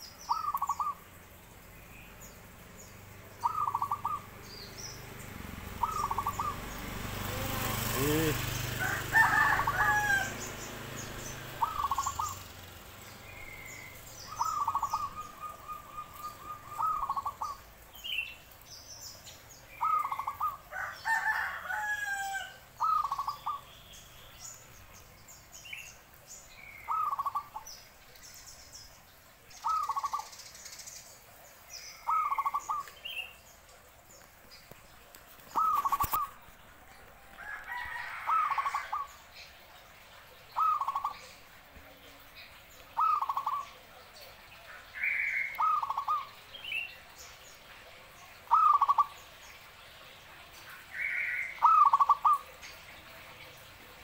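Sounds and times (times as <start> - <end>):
dove cooing: 3.4 - 4.4, 5.4 - 12.6, 13.4 - 17.7, 19.8 - 23.6, 32.1 - 32.9, 35.5 - 36.4, 40.6 - 41.4, 43.0 - 43.8, 45.1 - 46.4, 48.4 - 49.2, 51.0 - 52.6.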